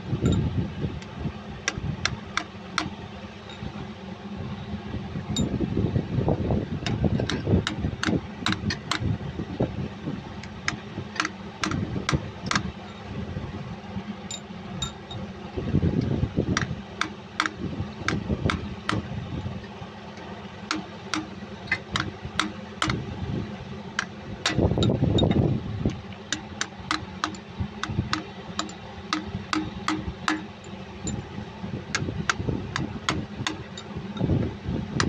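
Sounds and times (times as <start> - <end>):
hammer tapping metal punch: 1.0 - 3.7, 6.8 - 9.1, 10.4 - 13.0, 14.3 - 15.2, 16.6 - 19.1, 20.7 - 23.0, 24.0 - 31.3, 31.9 - 34.3.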